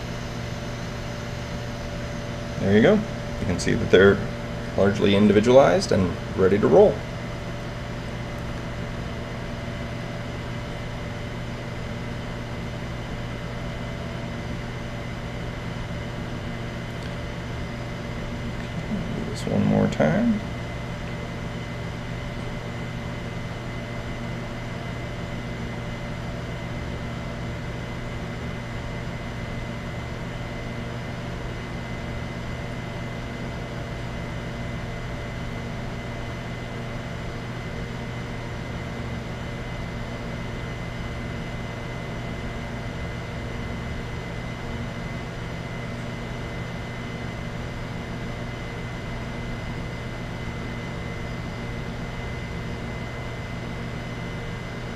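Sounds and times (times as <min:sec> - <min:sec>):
faint high whine: 0:00.0 - 0:07.1
machine hum: 0:00.0 - 0:54.9.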